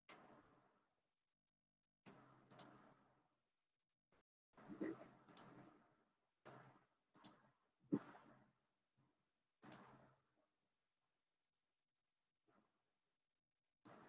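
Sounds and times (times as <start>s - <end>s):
computer mouse clicks: 2.5s - 2.8s.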